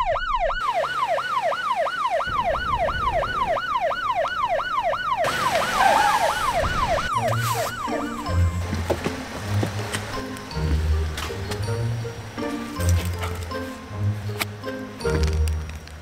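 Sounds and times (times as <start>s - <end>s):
electronic siren yelping: 0.0s - 8.6s.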